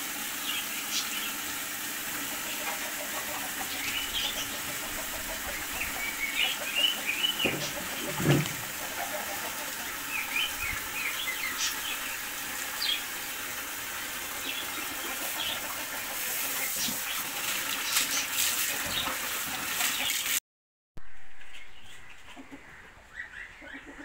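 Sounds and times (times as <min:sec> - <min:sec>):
birds chirping: 0:00.4 - 0:01.4, 0:02.4 - 0:19.2
water splashing on concrete: 0:07.2 - 0:09.4, 0:14.4 - 0:20.4.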